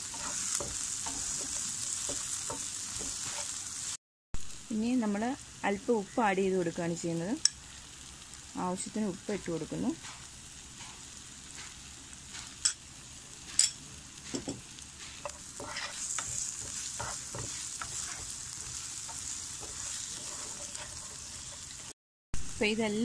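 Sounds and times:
spatula scraping a pan: 0:00.0 - 0:03.6, 0:10.0 - 0:12.6, 0:13.5 - 0:21.9
onions sizzling in oil: 0:00.0 - 0:23.0.

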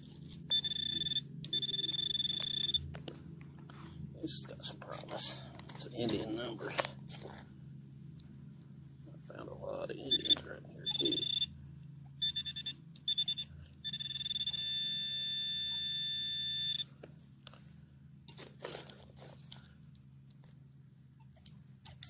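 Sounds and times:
dirt scraping and crunching: 0:00.0 - 0:00.7, 0:01.6 - 0:09.4, 0:17.0 - 0:20.6
metal detector pinpointer buzzing: 0:00.0 - 0:02.9, 0:10.1 - 0:11.6, 0:12.2 - 0:16.9.

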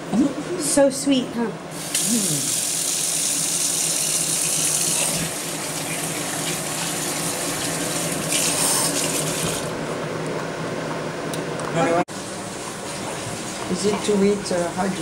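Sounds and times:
running water from faucet: 0:01.7 - 0:09.8.

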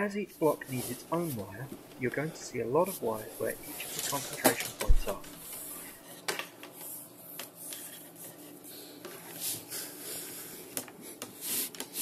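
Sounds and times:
wires rustling: 0:00.4 - 0:06.9.

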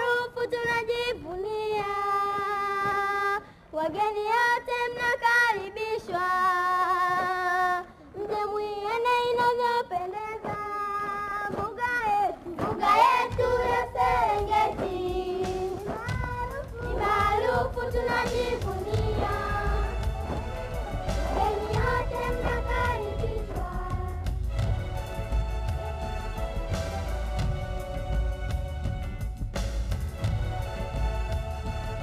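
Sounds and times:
children singing in unison: 0:12.6 - 0:24.3.

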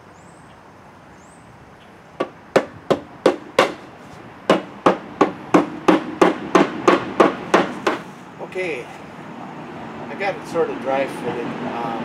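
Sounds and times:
hammer knocking wooden board: 0:02.2 - 0:03.8, 0:04.5 - 0:08.0.

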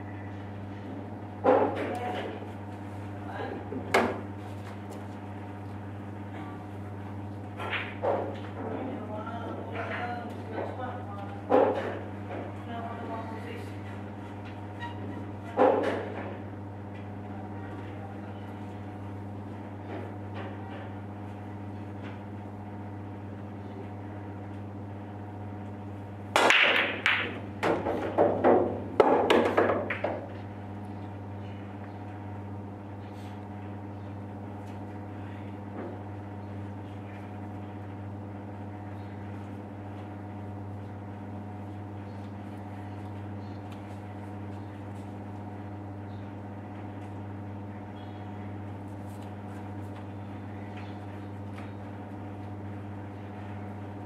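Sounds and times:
cue ball cracking into balls: 0:07.6 - 0:08.6, 0:26.3 - 0:30.4
pool balls clattering: 0:26.3 - 0:30.6.

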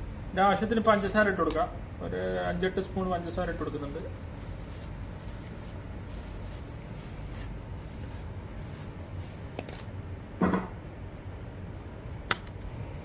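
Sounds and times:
sugar sprinkling and scraping: 0:02.1 - 0:09.9
brief thump: 0:10.4 - 0:10.8.

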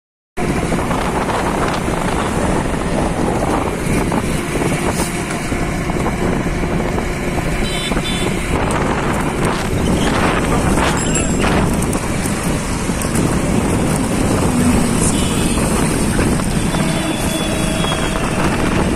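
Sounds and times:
motorcycle engine: 0:00.4 - 0:18.9
wind rushing: 0:00.4 - 0:18.9.

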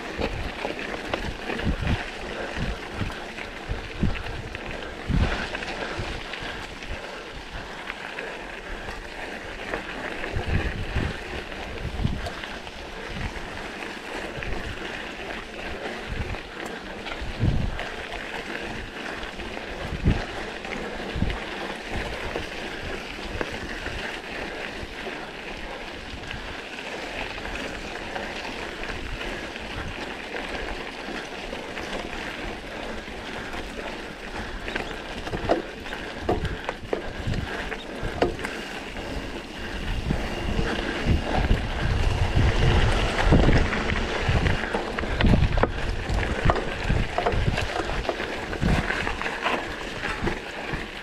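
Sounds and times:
wind on microphone: 0:00.0 - 0:07.8, 0:08.4 - 0:51.0
bicycle tyre noise: 0:00.0 - 0:51.0
bike knocks and rattles: 0:34.7 - 0:38.7, 0:41.3 - 0:51.0.

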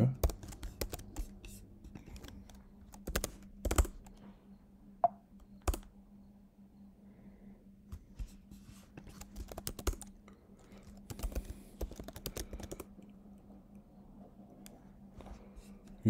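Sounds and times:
faint low hum: 0:00.0 - 0:16.0
typing on computer keyboard: 0:00.1 - 0:01.4, 0:02.0 - 0:04.2, 0:05.6 - 0:05.9, 0:09.0 - 0:13.1.

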